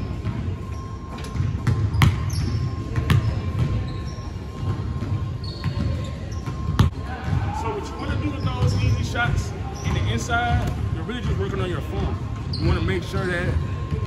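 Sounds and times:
sneaker squeaks: 0:00.0 - 0:14.0
basketballs bouncing on hardwood: 0:01.4 - 0:03.8.

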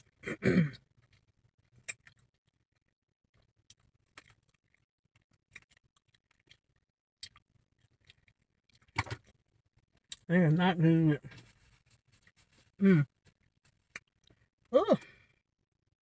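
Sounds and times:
person eating chicken wings: 0:00.8 - 0:02.3.

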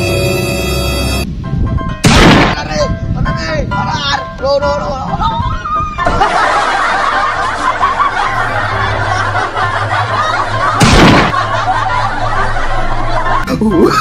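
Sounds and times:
people giggling: 0:05.2 - 0:14.0
loud splash into water: 0:10.8 - 0:11.4.

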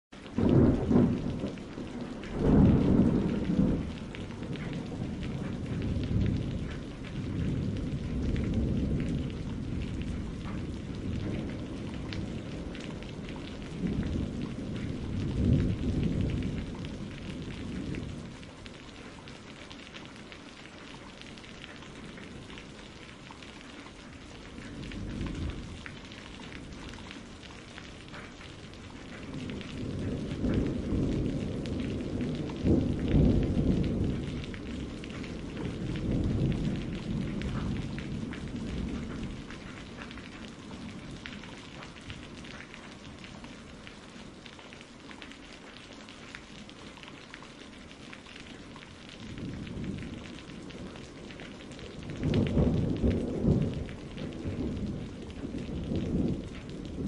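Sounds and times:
steady rain hiss: 0:00.2 - 0:57.0
rolls of thunder: 0:00.3 - 0:18.6, 0:24.3 - 0:43.3, 0:49.2 - 0:57.0.

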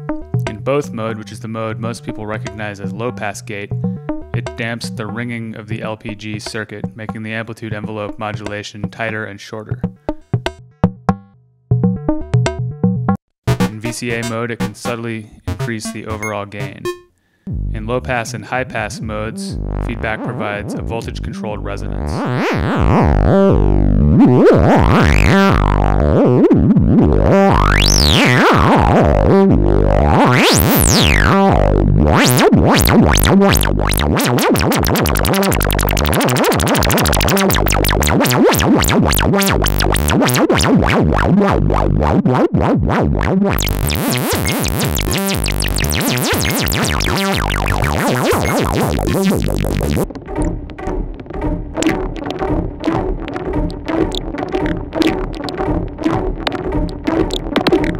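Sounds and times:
synthesizer note pattern: 0:13.5 - 0:17.1, 0:19.5 - 0:50.5, 0:51.8 - 0:57.9.

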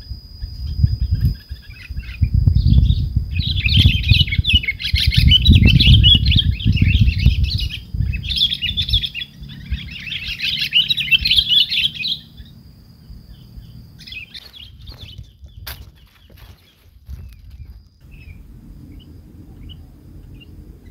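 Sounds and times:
bulbuls chattering chirps: 0:01.2 - 0:20.9
low rumble: 0:17.1 - 0:20.9.

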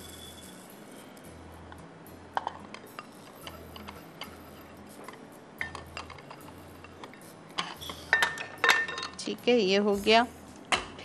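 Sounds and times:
utensils tapping a bowl: 0:02.4 - 0:09.3.

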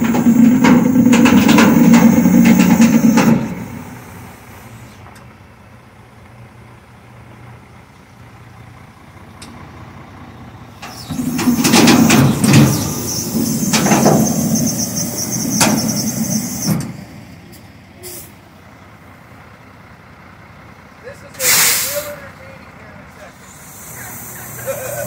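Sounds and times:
air brakes hissing: 0:00.0 - 0:05.2, 0:10.8 - 0:18.5, 0:21.4 - 0:22.3, 0:23.3 - 0:25.0
truck engine rumble: 0:00.0 - 0:25.0.

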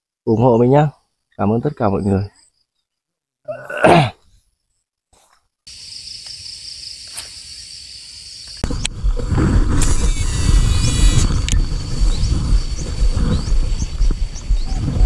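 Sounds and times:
insects buzzing: 0:05.2 - 0:15.0
wind rumble on microphone: 0:08.6 - 0:15.0.

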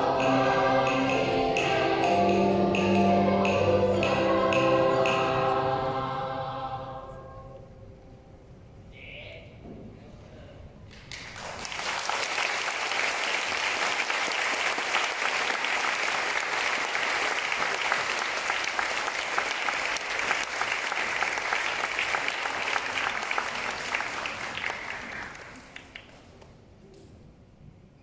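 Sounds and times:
audience applauding: 0:11.0 - 0:26.5.

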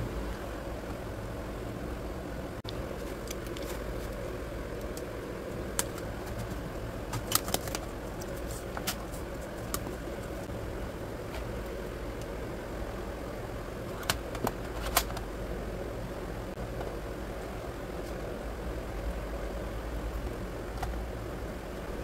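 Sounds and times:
low background hum: 0:00.0 - 0:22.0.

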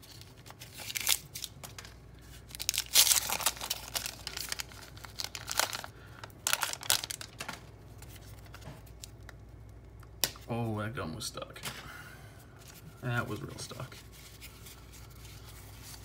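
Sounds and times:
wax paper wrapper crinkling: 0:00.0 - 0:09.4, 0:12.6 - 0:16.0.

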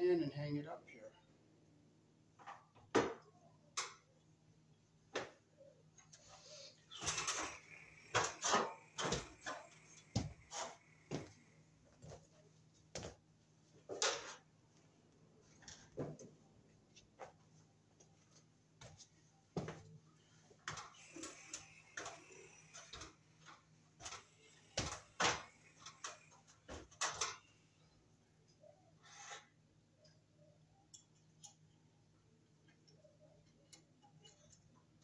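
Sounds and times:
knocks and rattles on metal stepladder: 0:07.0 - 0:11.3.

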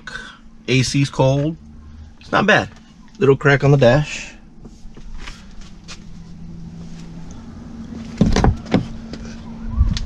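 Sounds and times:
steady low hum: 0:00.0 - 0:10.0
person climbing out of car: 0:04.6 - 0:10.0.

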